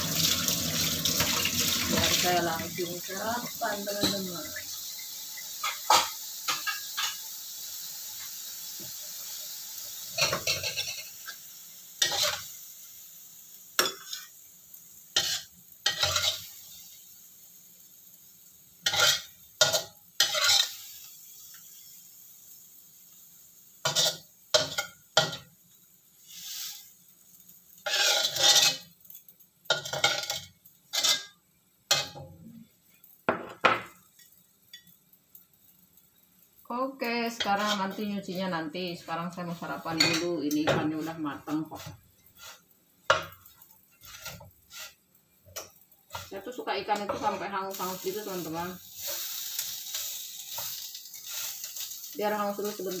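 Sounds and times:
faint sizzle: 0.0 - 53.0
metal spatula scraping a wok: 10.1 - 11.4, 12.0 - 12.6, 13.8 - 14.4, 15.1 - 16.9, 18.8 - 21.1, 23.8 - 25.5, 26.2 - 32.2, 37.3 - 38.3, 39.5 - 53.0.

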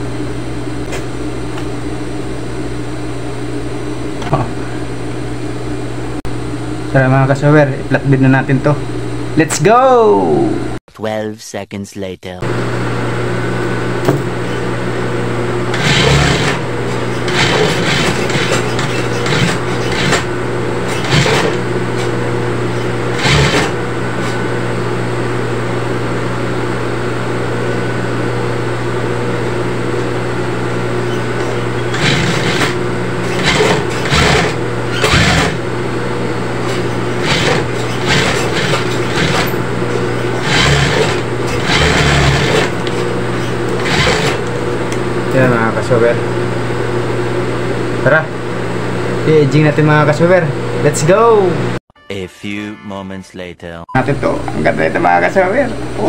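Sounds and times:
sewing machine stitching: 15.7 - 22.1, 22.7 - 24.4, 31.0 - 35.7, 36.6 - 44.5.

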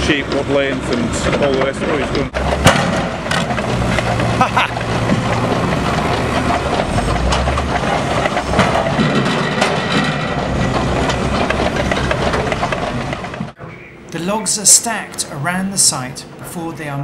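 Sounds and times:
logs knocking and clattering: 0.0 - 13.6
diesel engine working: 0.0 - 16.5.

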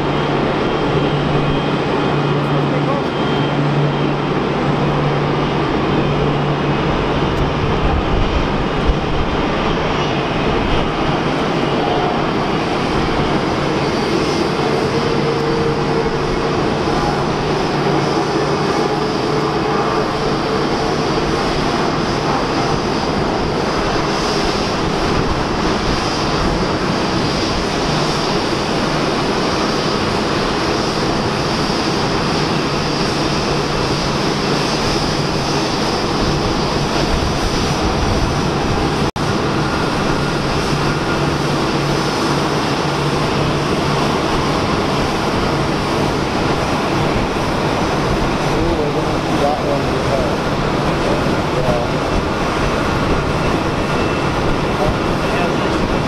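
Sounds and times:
jet engines roaring: 0.0 - 56.0.

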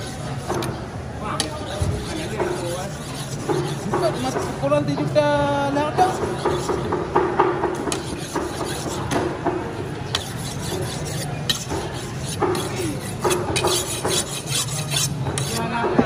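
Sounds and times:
knife scraping on whetstone: 0.0 - 0.8, 1.4 - 4.7, 5.9 - 7.1, 7.8 - 9.3, 10.1 - 15.7.

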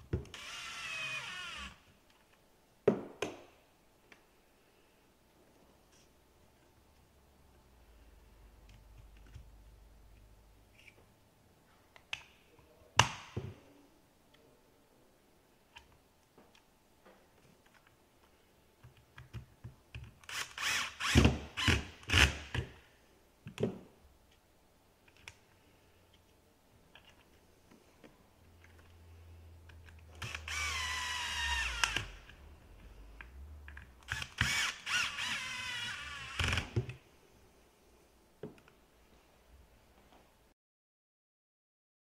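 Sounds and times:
drill motor whining: 0.3 - 1.8, 30.2 - 32.2, 34.0 - 36.7.

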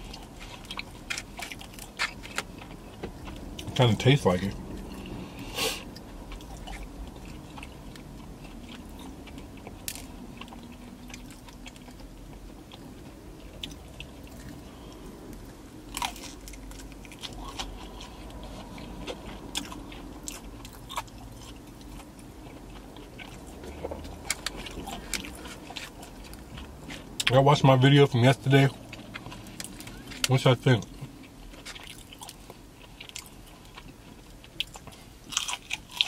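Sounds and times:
person chewing crunchy food: 0.0 - 27.3, 28.7 - 36.0
loud crunchy bites: 15.8 - 18.4.

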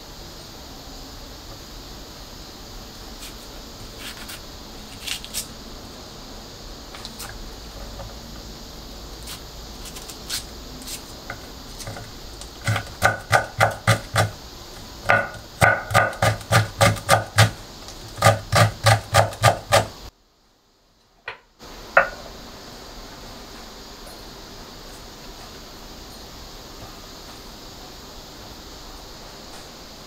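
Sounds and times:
knife chopping on wooden board: 11.3 - 14.4, 15.0 - 17.6, 18.2 - 19.9.

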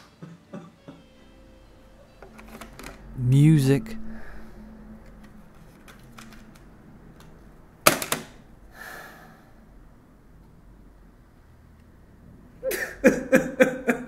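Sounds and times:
plastic case snapping: 7.9 - 8.4.

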